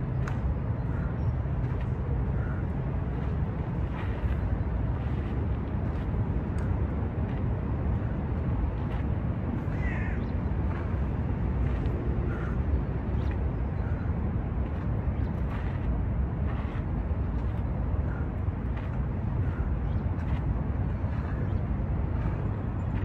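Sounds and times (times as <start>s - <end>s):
city traffic: 0.0s - 23.0s
wind: 0.0s - 23.0s
crow cawing: 9.7s - 10.2s.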